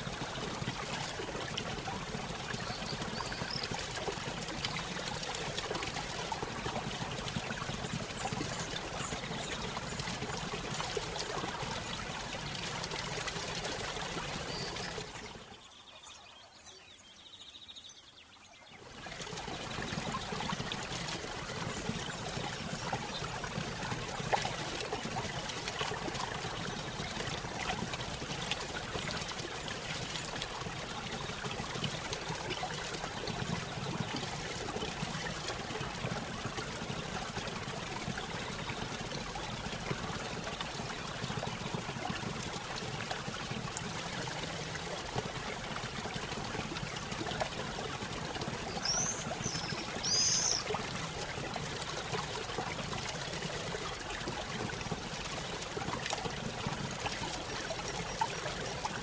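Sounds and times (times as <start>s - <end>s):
bird chirping: 48.8s - 50.6s.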